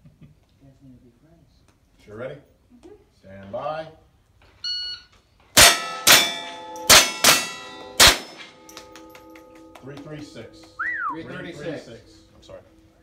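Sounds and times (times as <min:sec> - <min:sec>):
rifle shots: 0:05.6 - 0:08.5
steel target plate ringing: 0:05.6 - 0:13.0.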